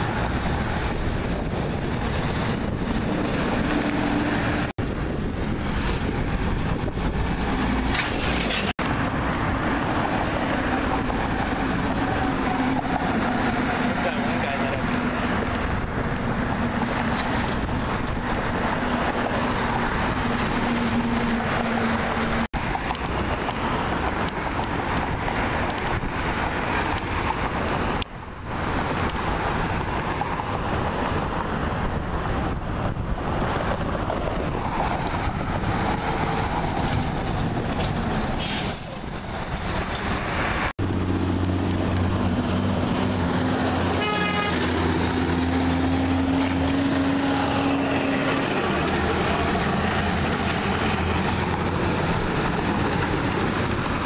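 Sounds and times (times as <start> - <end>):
heavy trucks driving: 0.0 - 54.0
truck engine drone: 39.9 - 54.0.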